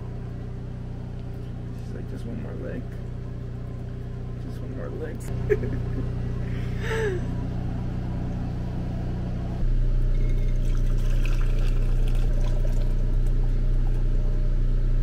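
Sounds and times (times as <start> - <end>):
low steady hum: 0.0 - 15.0
tea pouring through a strainer: 10.1 - 14.0.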